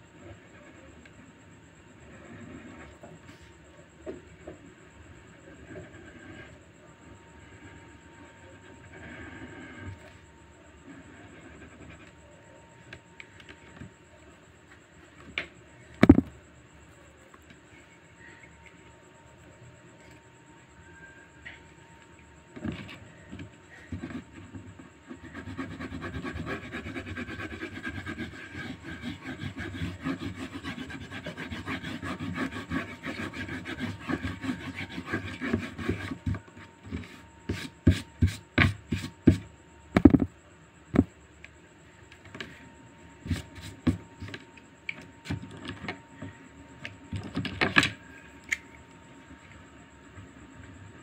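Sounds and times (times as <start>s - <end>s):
drawing tool rubbing on paper: 10.8s - 12.1s, 23.8s - 39.5s, 43.2s - 44.4s.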